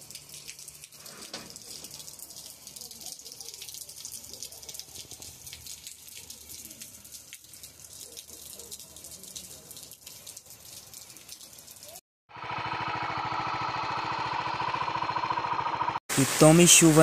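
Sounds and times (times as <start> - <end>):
heavy rain on flooded street: 1.3 - 12.0, 16.1 - 17.0
water running: 16.1 - 17.0.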